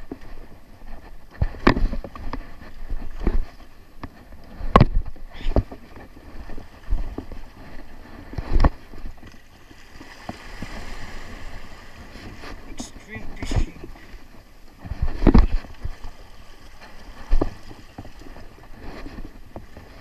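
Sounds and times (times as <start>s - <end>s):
footsteps and camera thumps: 0.0s - 9.4s, 12.1s - 20.0s
small waves lapping on rocks: 8.6s - 18.7s.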